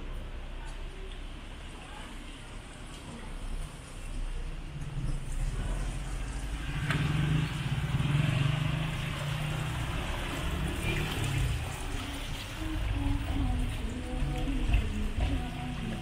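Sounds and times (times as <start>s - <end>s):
car engines and tyres passing: 3.4s - 16.0s.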